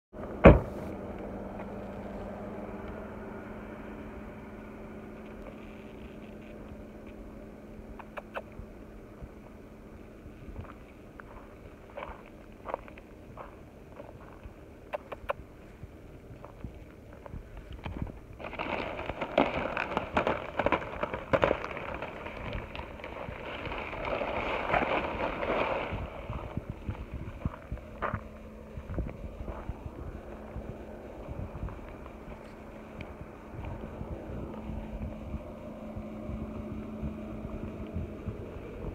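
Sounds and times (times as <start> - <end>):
vehicle engine idling: 0.2 - 38.9
plastic sack crinkling: 18.3 - 27.8.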